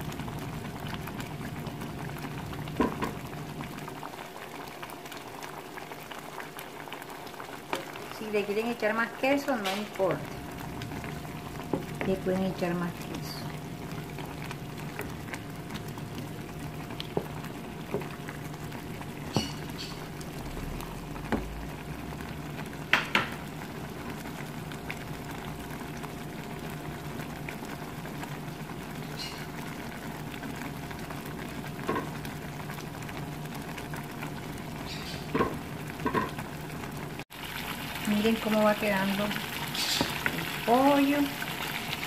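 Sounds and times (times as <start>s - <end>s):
sauce bubbling in a pan: 0.0s - 42.0s
low hum: 19.0s - 22.8s.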